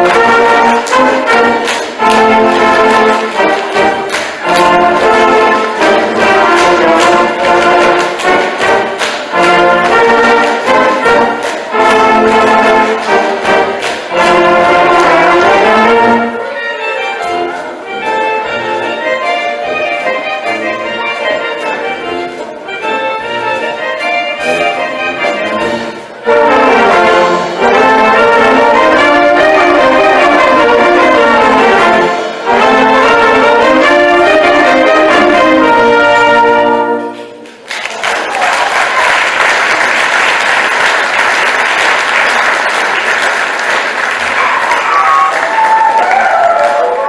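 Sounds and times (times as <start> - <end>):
audience applause: 0.0 - 15.6, 37.4 - 47.0
brass band playing: 0.0 - 37.7.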